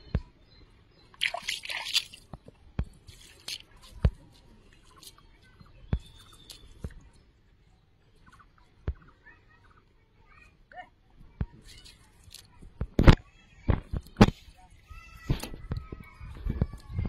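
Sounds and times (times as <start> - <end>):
water drips and plops: 1.1 - 5.2
water splashing and squelching: 1.1 - 7.2.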